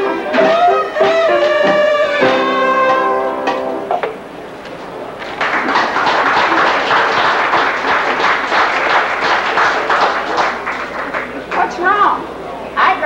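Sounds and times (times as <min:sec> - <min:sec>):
audience applauding: 0:05.1 - 0:11.7.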